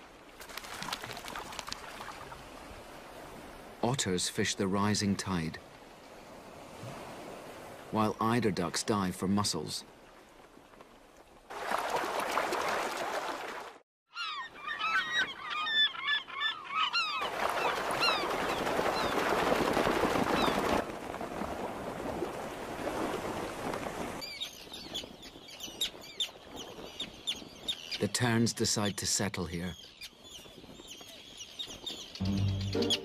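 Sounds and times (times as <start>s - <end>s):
ducks splashing on water: 0.0s - 3.7s, 9.9s - 13.8s, 16.8s - 24.2s.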